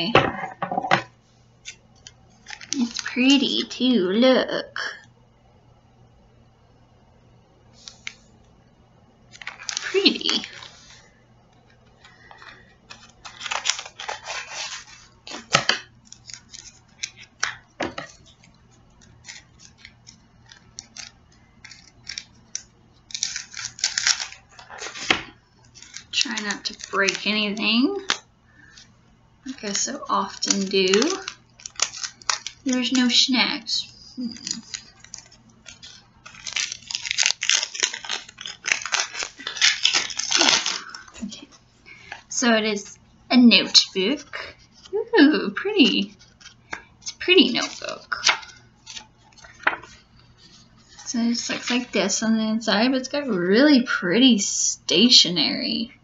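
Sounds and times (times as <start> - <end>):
packaging rustling: 1.7 - 3.1, 9.3 - 11.0, 11.6 - 28.9, 29.5 - 33.2, 33.8 - 42.4, 46.0 - 52.0.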